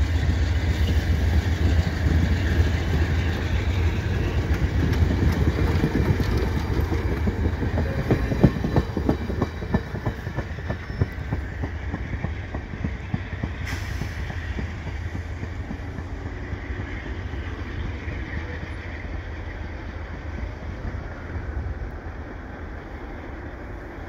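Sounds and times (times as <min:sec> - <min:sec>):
train wheels clacking over joints: 0:00.0 - 0:19.0
low rumble of train: 0:00.0 - 0:24.0.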